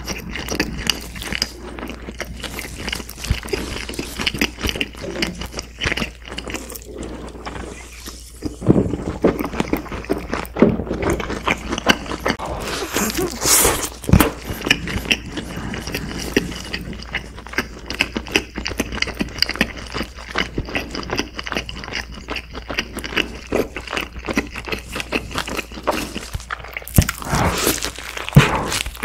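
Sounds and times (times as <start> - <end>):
wet chewing: 0.0 - 29.0
biting into burger: 20.4 - 29.0.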